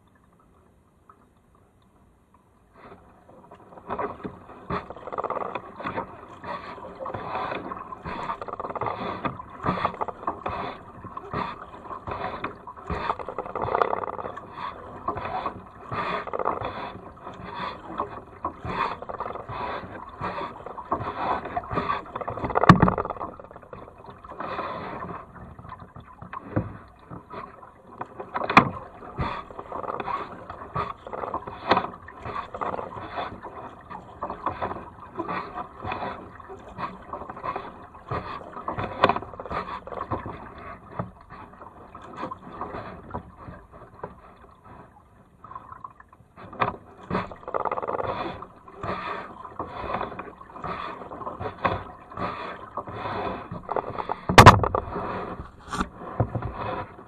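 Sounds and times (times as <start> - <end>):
paddle splashing through water: 0.0 - 57.0
sharp knocks: 54.3 - 54.9.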